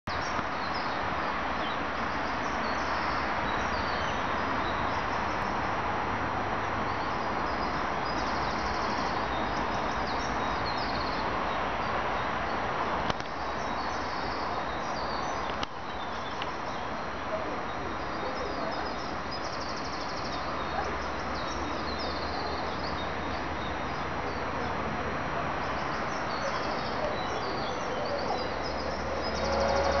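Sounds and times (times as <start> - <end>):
small birds chirping: 6.7 - 17.0, 17.6 - 24.8, 25.6 - 30.0.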